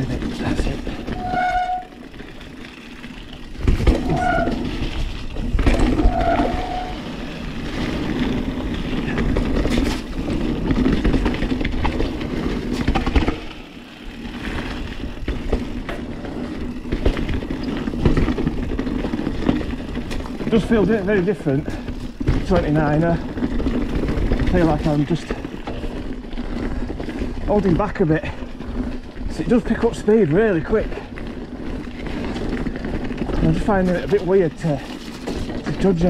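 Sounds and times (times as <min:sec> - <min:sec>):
bike frame rattling: 0:00.0 - 0:36.0
tyres rolling over dirt: 0:00.0 - 0:36.0
disc brakes squealing: 0:01.0 - 0:02.1, 0:04.0 - 0:04.8, 0:05.8 - 0:07.4.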